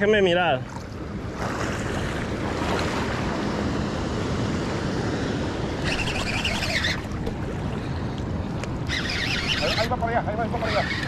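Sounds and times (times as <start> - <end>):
river water: 0.0 - 11.0
high rasping noise: 5.8 - 7.1, 8.8 - 10.0.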